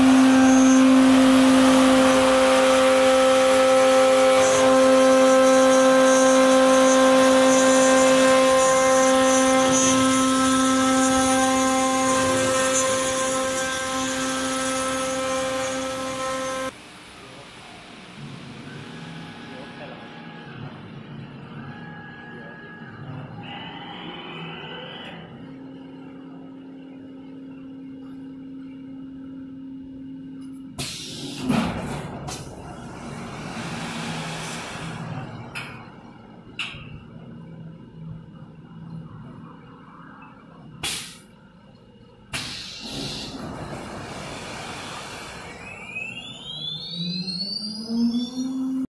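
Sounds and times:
milling spindle whining: 0.0 - 16.7, 44.2 - 48.9
compressed air hiss: 40.8 - 41.3, 42.4 - 43.4
hiss of metal cutting: 40.8 - 41.3, 42.4 - 45.8.

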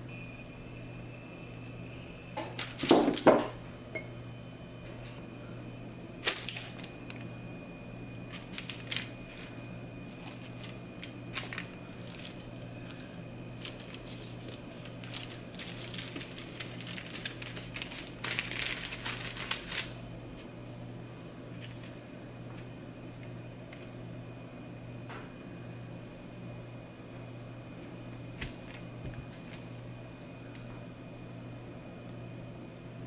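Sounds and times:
low steady hum: 0.0 - 33.0
parchment paper crinkling: 6.2 - 7.3, 8.2 - 20.0, 21.6 - 22.0, 28.4 - 29.7.

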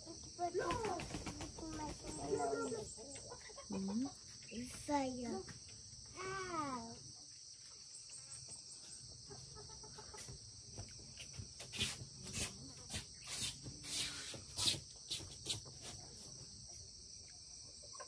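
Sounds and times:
chicken clucking: 1.3 - 4.6, 8.7 - 10.8, 17.5 - 18.0.

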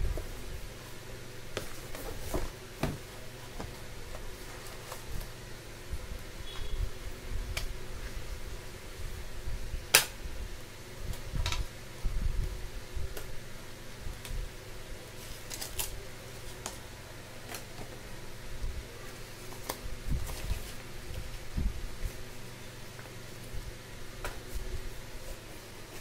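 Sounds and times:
faint steady hum: 0.0 - 26.0
packaging clicks and rustles: 15.1 - 16.8.

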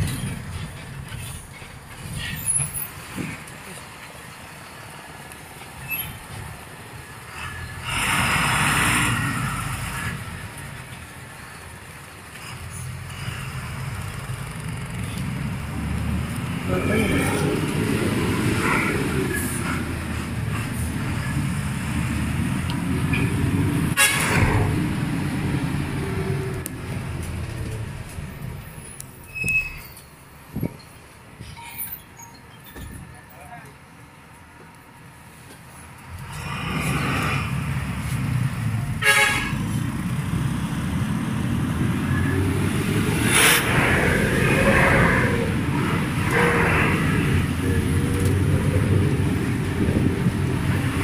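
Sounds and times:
bus engine and road noise: 0.0 - 51.0
bus horn toot: 23.9 - 24.7, 39.0 - 39.7.

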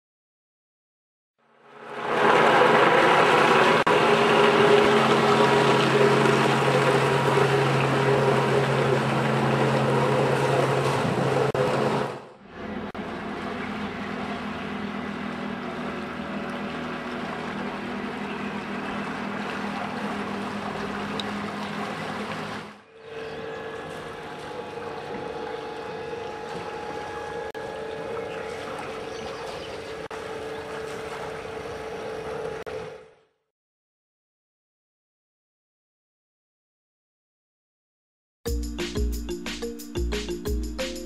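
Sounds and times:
churning water: 1.6 - 33.2
electric thruster humming: 1.8 - 22.3.

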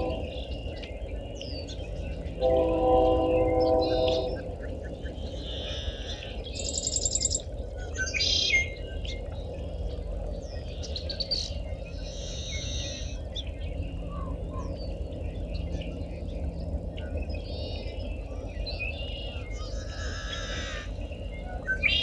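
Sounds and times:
marsh birds calling and singing: 0.0 - 22.0
buzzy bird trill: 6.6 - 7.4.

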